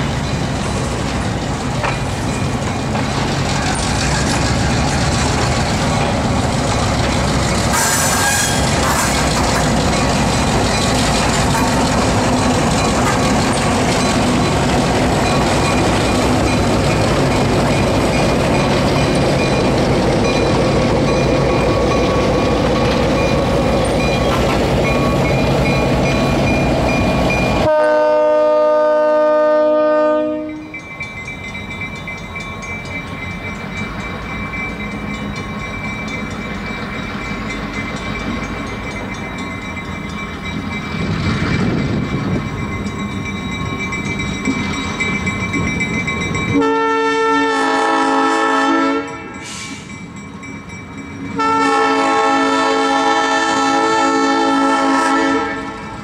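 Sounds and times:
wheels clacking over rail joints: 0:00.0 - 0:27.7, 0:30.8 - 0:46.7
diesel locomotive engine running: 0:00.0 - 0:56.0
locomotive air horn: 0:07.7 - 0:09.4, 0:27.6 - 0:30.7, 0:46.6 - 0:49.8, 0:51.4 - 0:56.0
wheel squeal: 0:07.7 - 0:11.8.

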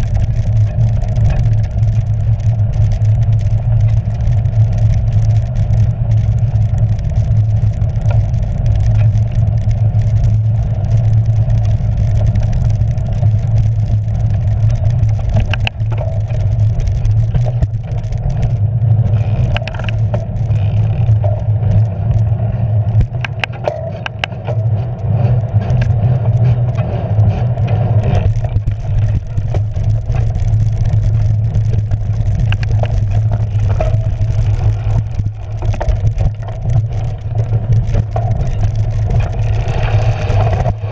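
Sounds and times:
bike riding rumble: 0:00.0 - 0:40.9
wind noise: 0:00.0 - 0:40.9.

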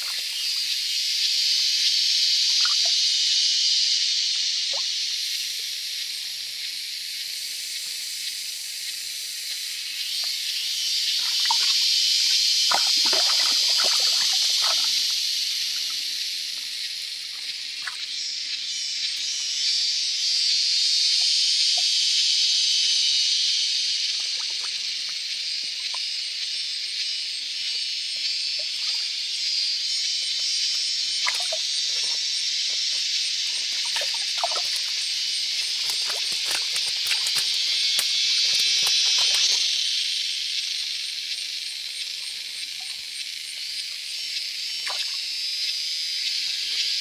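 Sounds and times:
forest and stream ambience hiss: 0:00.0 - 0:47.0
small splashes from handling fish: 0:12.7 - 0:15.1, 0:31.2 - 0:32.1, 0:33.7 - 0:39.7.

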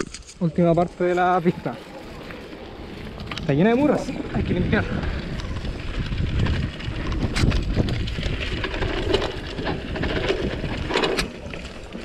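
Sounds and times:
grass brushing against bike: 0:00.0 - 0:12.0
tyres rumbling over dirt: 0:00.0 - 0:12.0
bike clicks and knocks: 0:02.0 - 0:12.0.

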